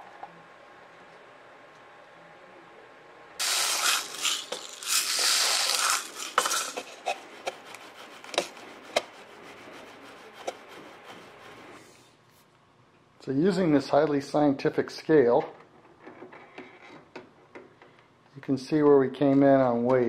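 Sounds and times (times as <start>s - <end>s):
lead shot pouring into a funnel: 3.4s - 7.1s.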